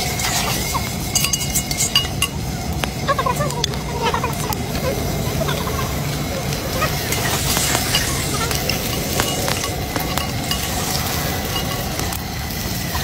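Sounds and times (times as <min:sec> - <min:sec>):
ladle stirring: 0:00.0 - 0:02.4, 0:06.8 - 0:12.2
food sizzling in a pot: 0:00.0 - 0:03.1, 0:05.3 - 0:13.0.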